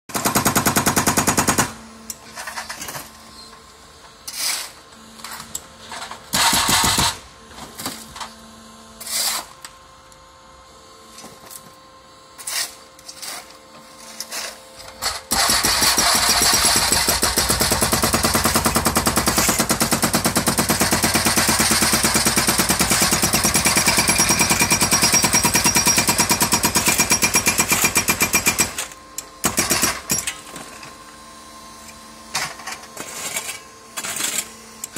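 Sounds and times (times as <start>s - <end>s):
hydraulic breaker hammering concrete: 0.1s - 1.8s, 6.3s - 7.2s, 15.0s - 30.3s.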